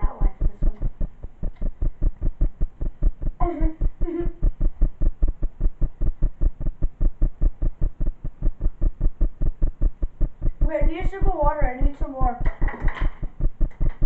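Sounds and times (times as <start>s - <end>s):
child's voice: 0.0s - 0.9s, 10.6s - 12.4s
rapid low thumping: 0.0s - 14.0s.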